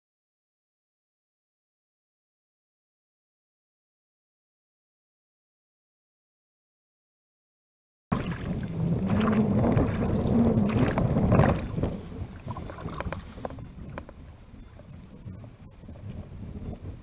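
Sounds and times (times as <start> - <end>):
wavering low hum: 8.1 - 17.0
wind and water rushing: 8.1 - 17.0.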